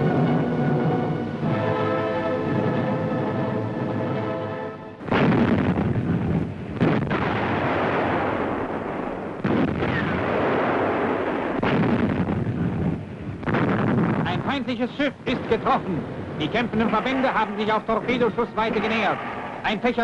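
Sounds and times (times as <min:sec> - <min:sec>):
orchestral music: 0:00.0 - 0:05.0
continuous rumble: 0:00.0 - 0:20.0
naval gun booms: 0:05.0 - 0:20.0.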